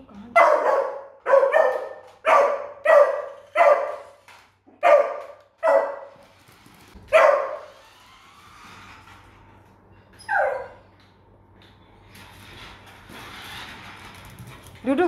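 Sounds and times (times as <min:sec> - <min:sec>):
puppy barking: 0:00.4 - 0:04.2, 0:04.8 - 0:06.2, 0:07.1 - 0:07.7, 0:10.3 - 0:10.8.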